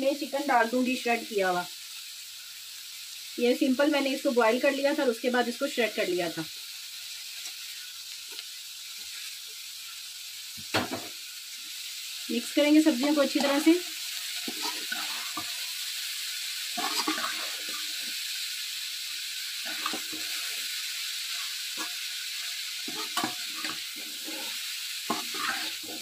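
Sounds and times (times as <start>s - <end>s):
food sizzling in hot oil: 0.0s - 26.0s
utensil scraping and knocking pan: 22.9s - 26.0s.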